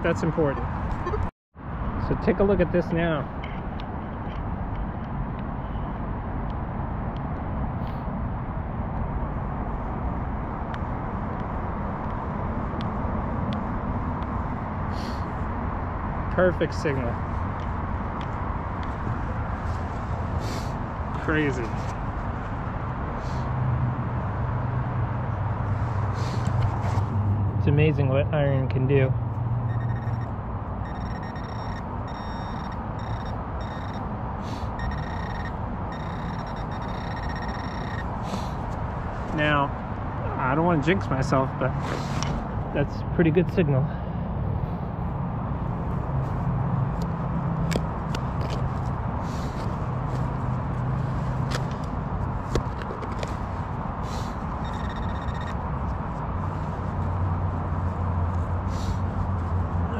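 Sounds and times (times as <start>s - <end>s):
steady background noise: 0.0s - 59.9s
metal detector pinpointer buzzing: 29.7s - 34.0s, 34.8s - 38.1s, 54.6s - 55.6s.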